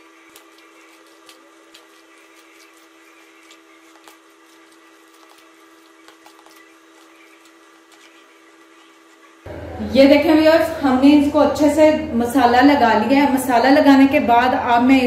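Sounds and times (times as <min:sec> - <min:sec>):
wet squishing of kneading: 0:00.0 - 0:09.5
steady low hum: 0:00.0 - 0:15.0.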